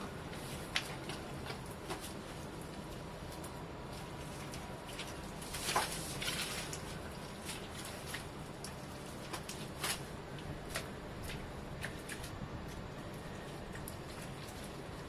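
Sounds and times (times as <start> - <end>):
steady low hum: 0.0 - 15.0
mud squelching and splatting: 4.0 - 12.8.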